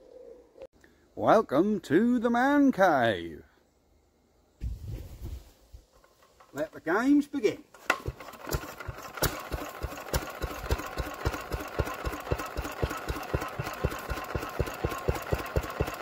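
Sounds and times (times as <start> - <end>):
single-cylinder engine thumping: 7.8 - 16.0.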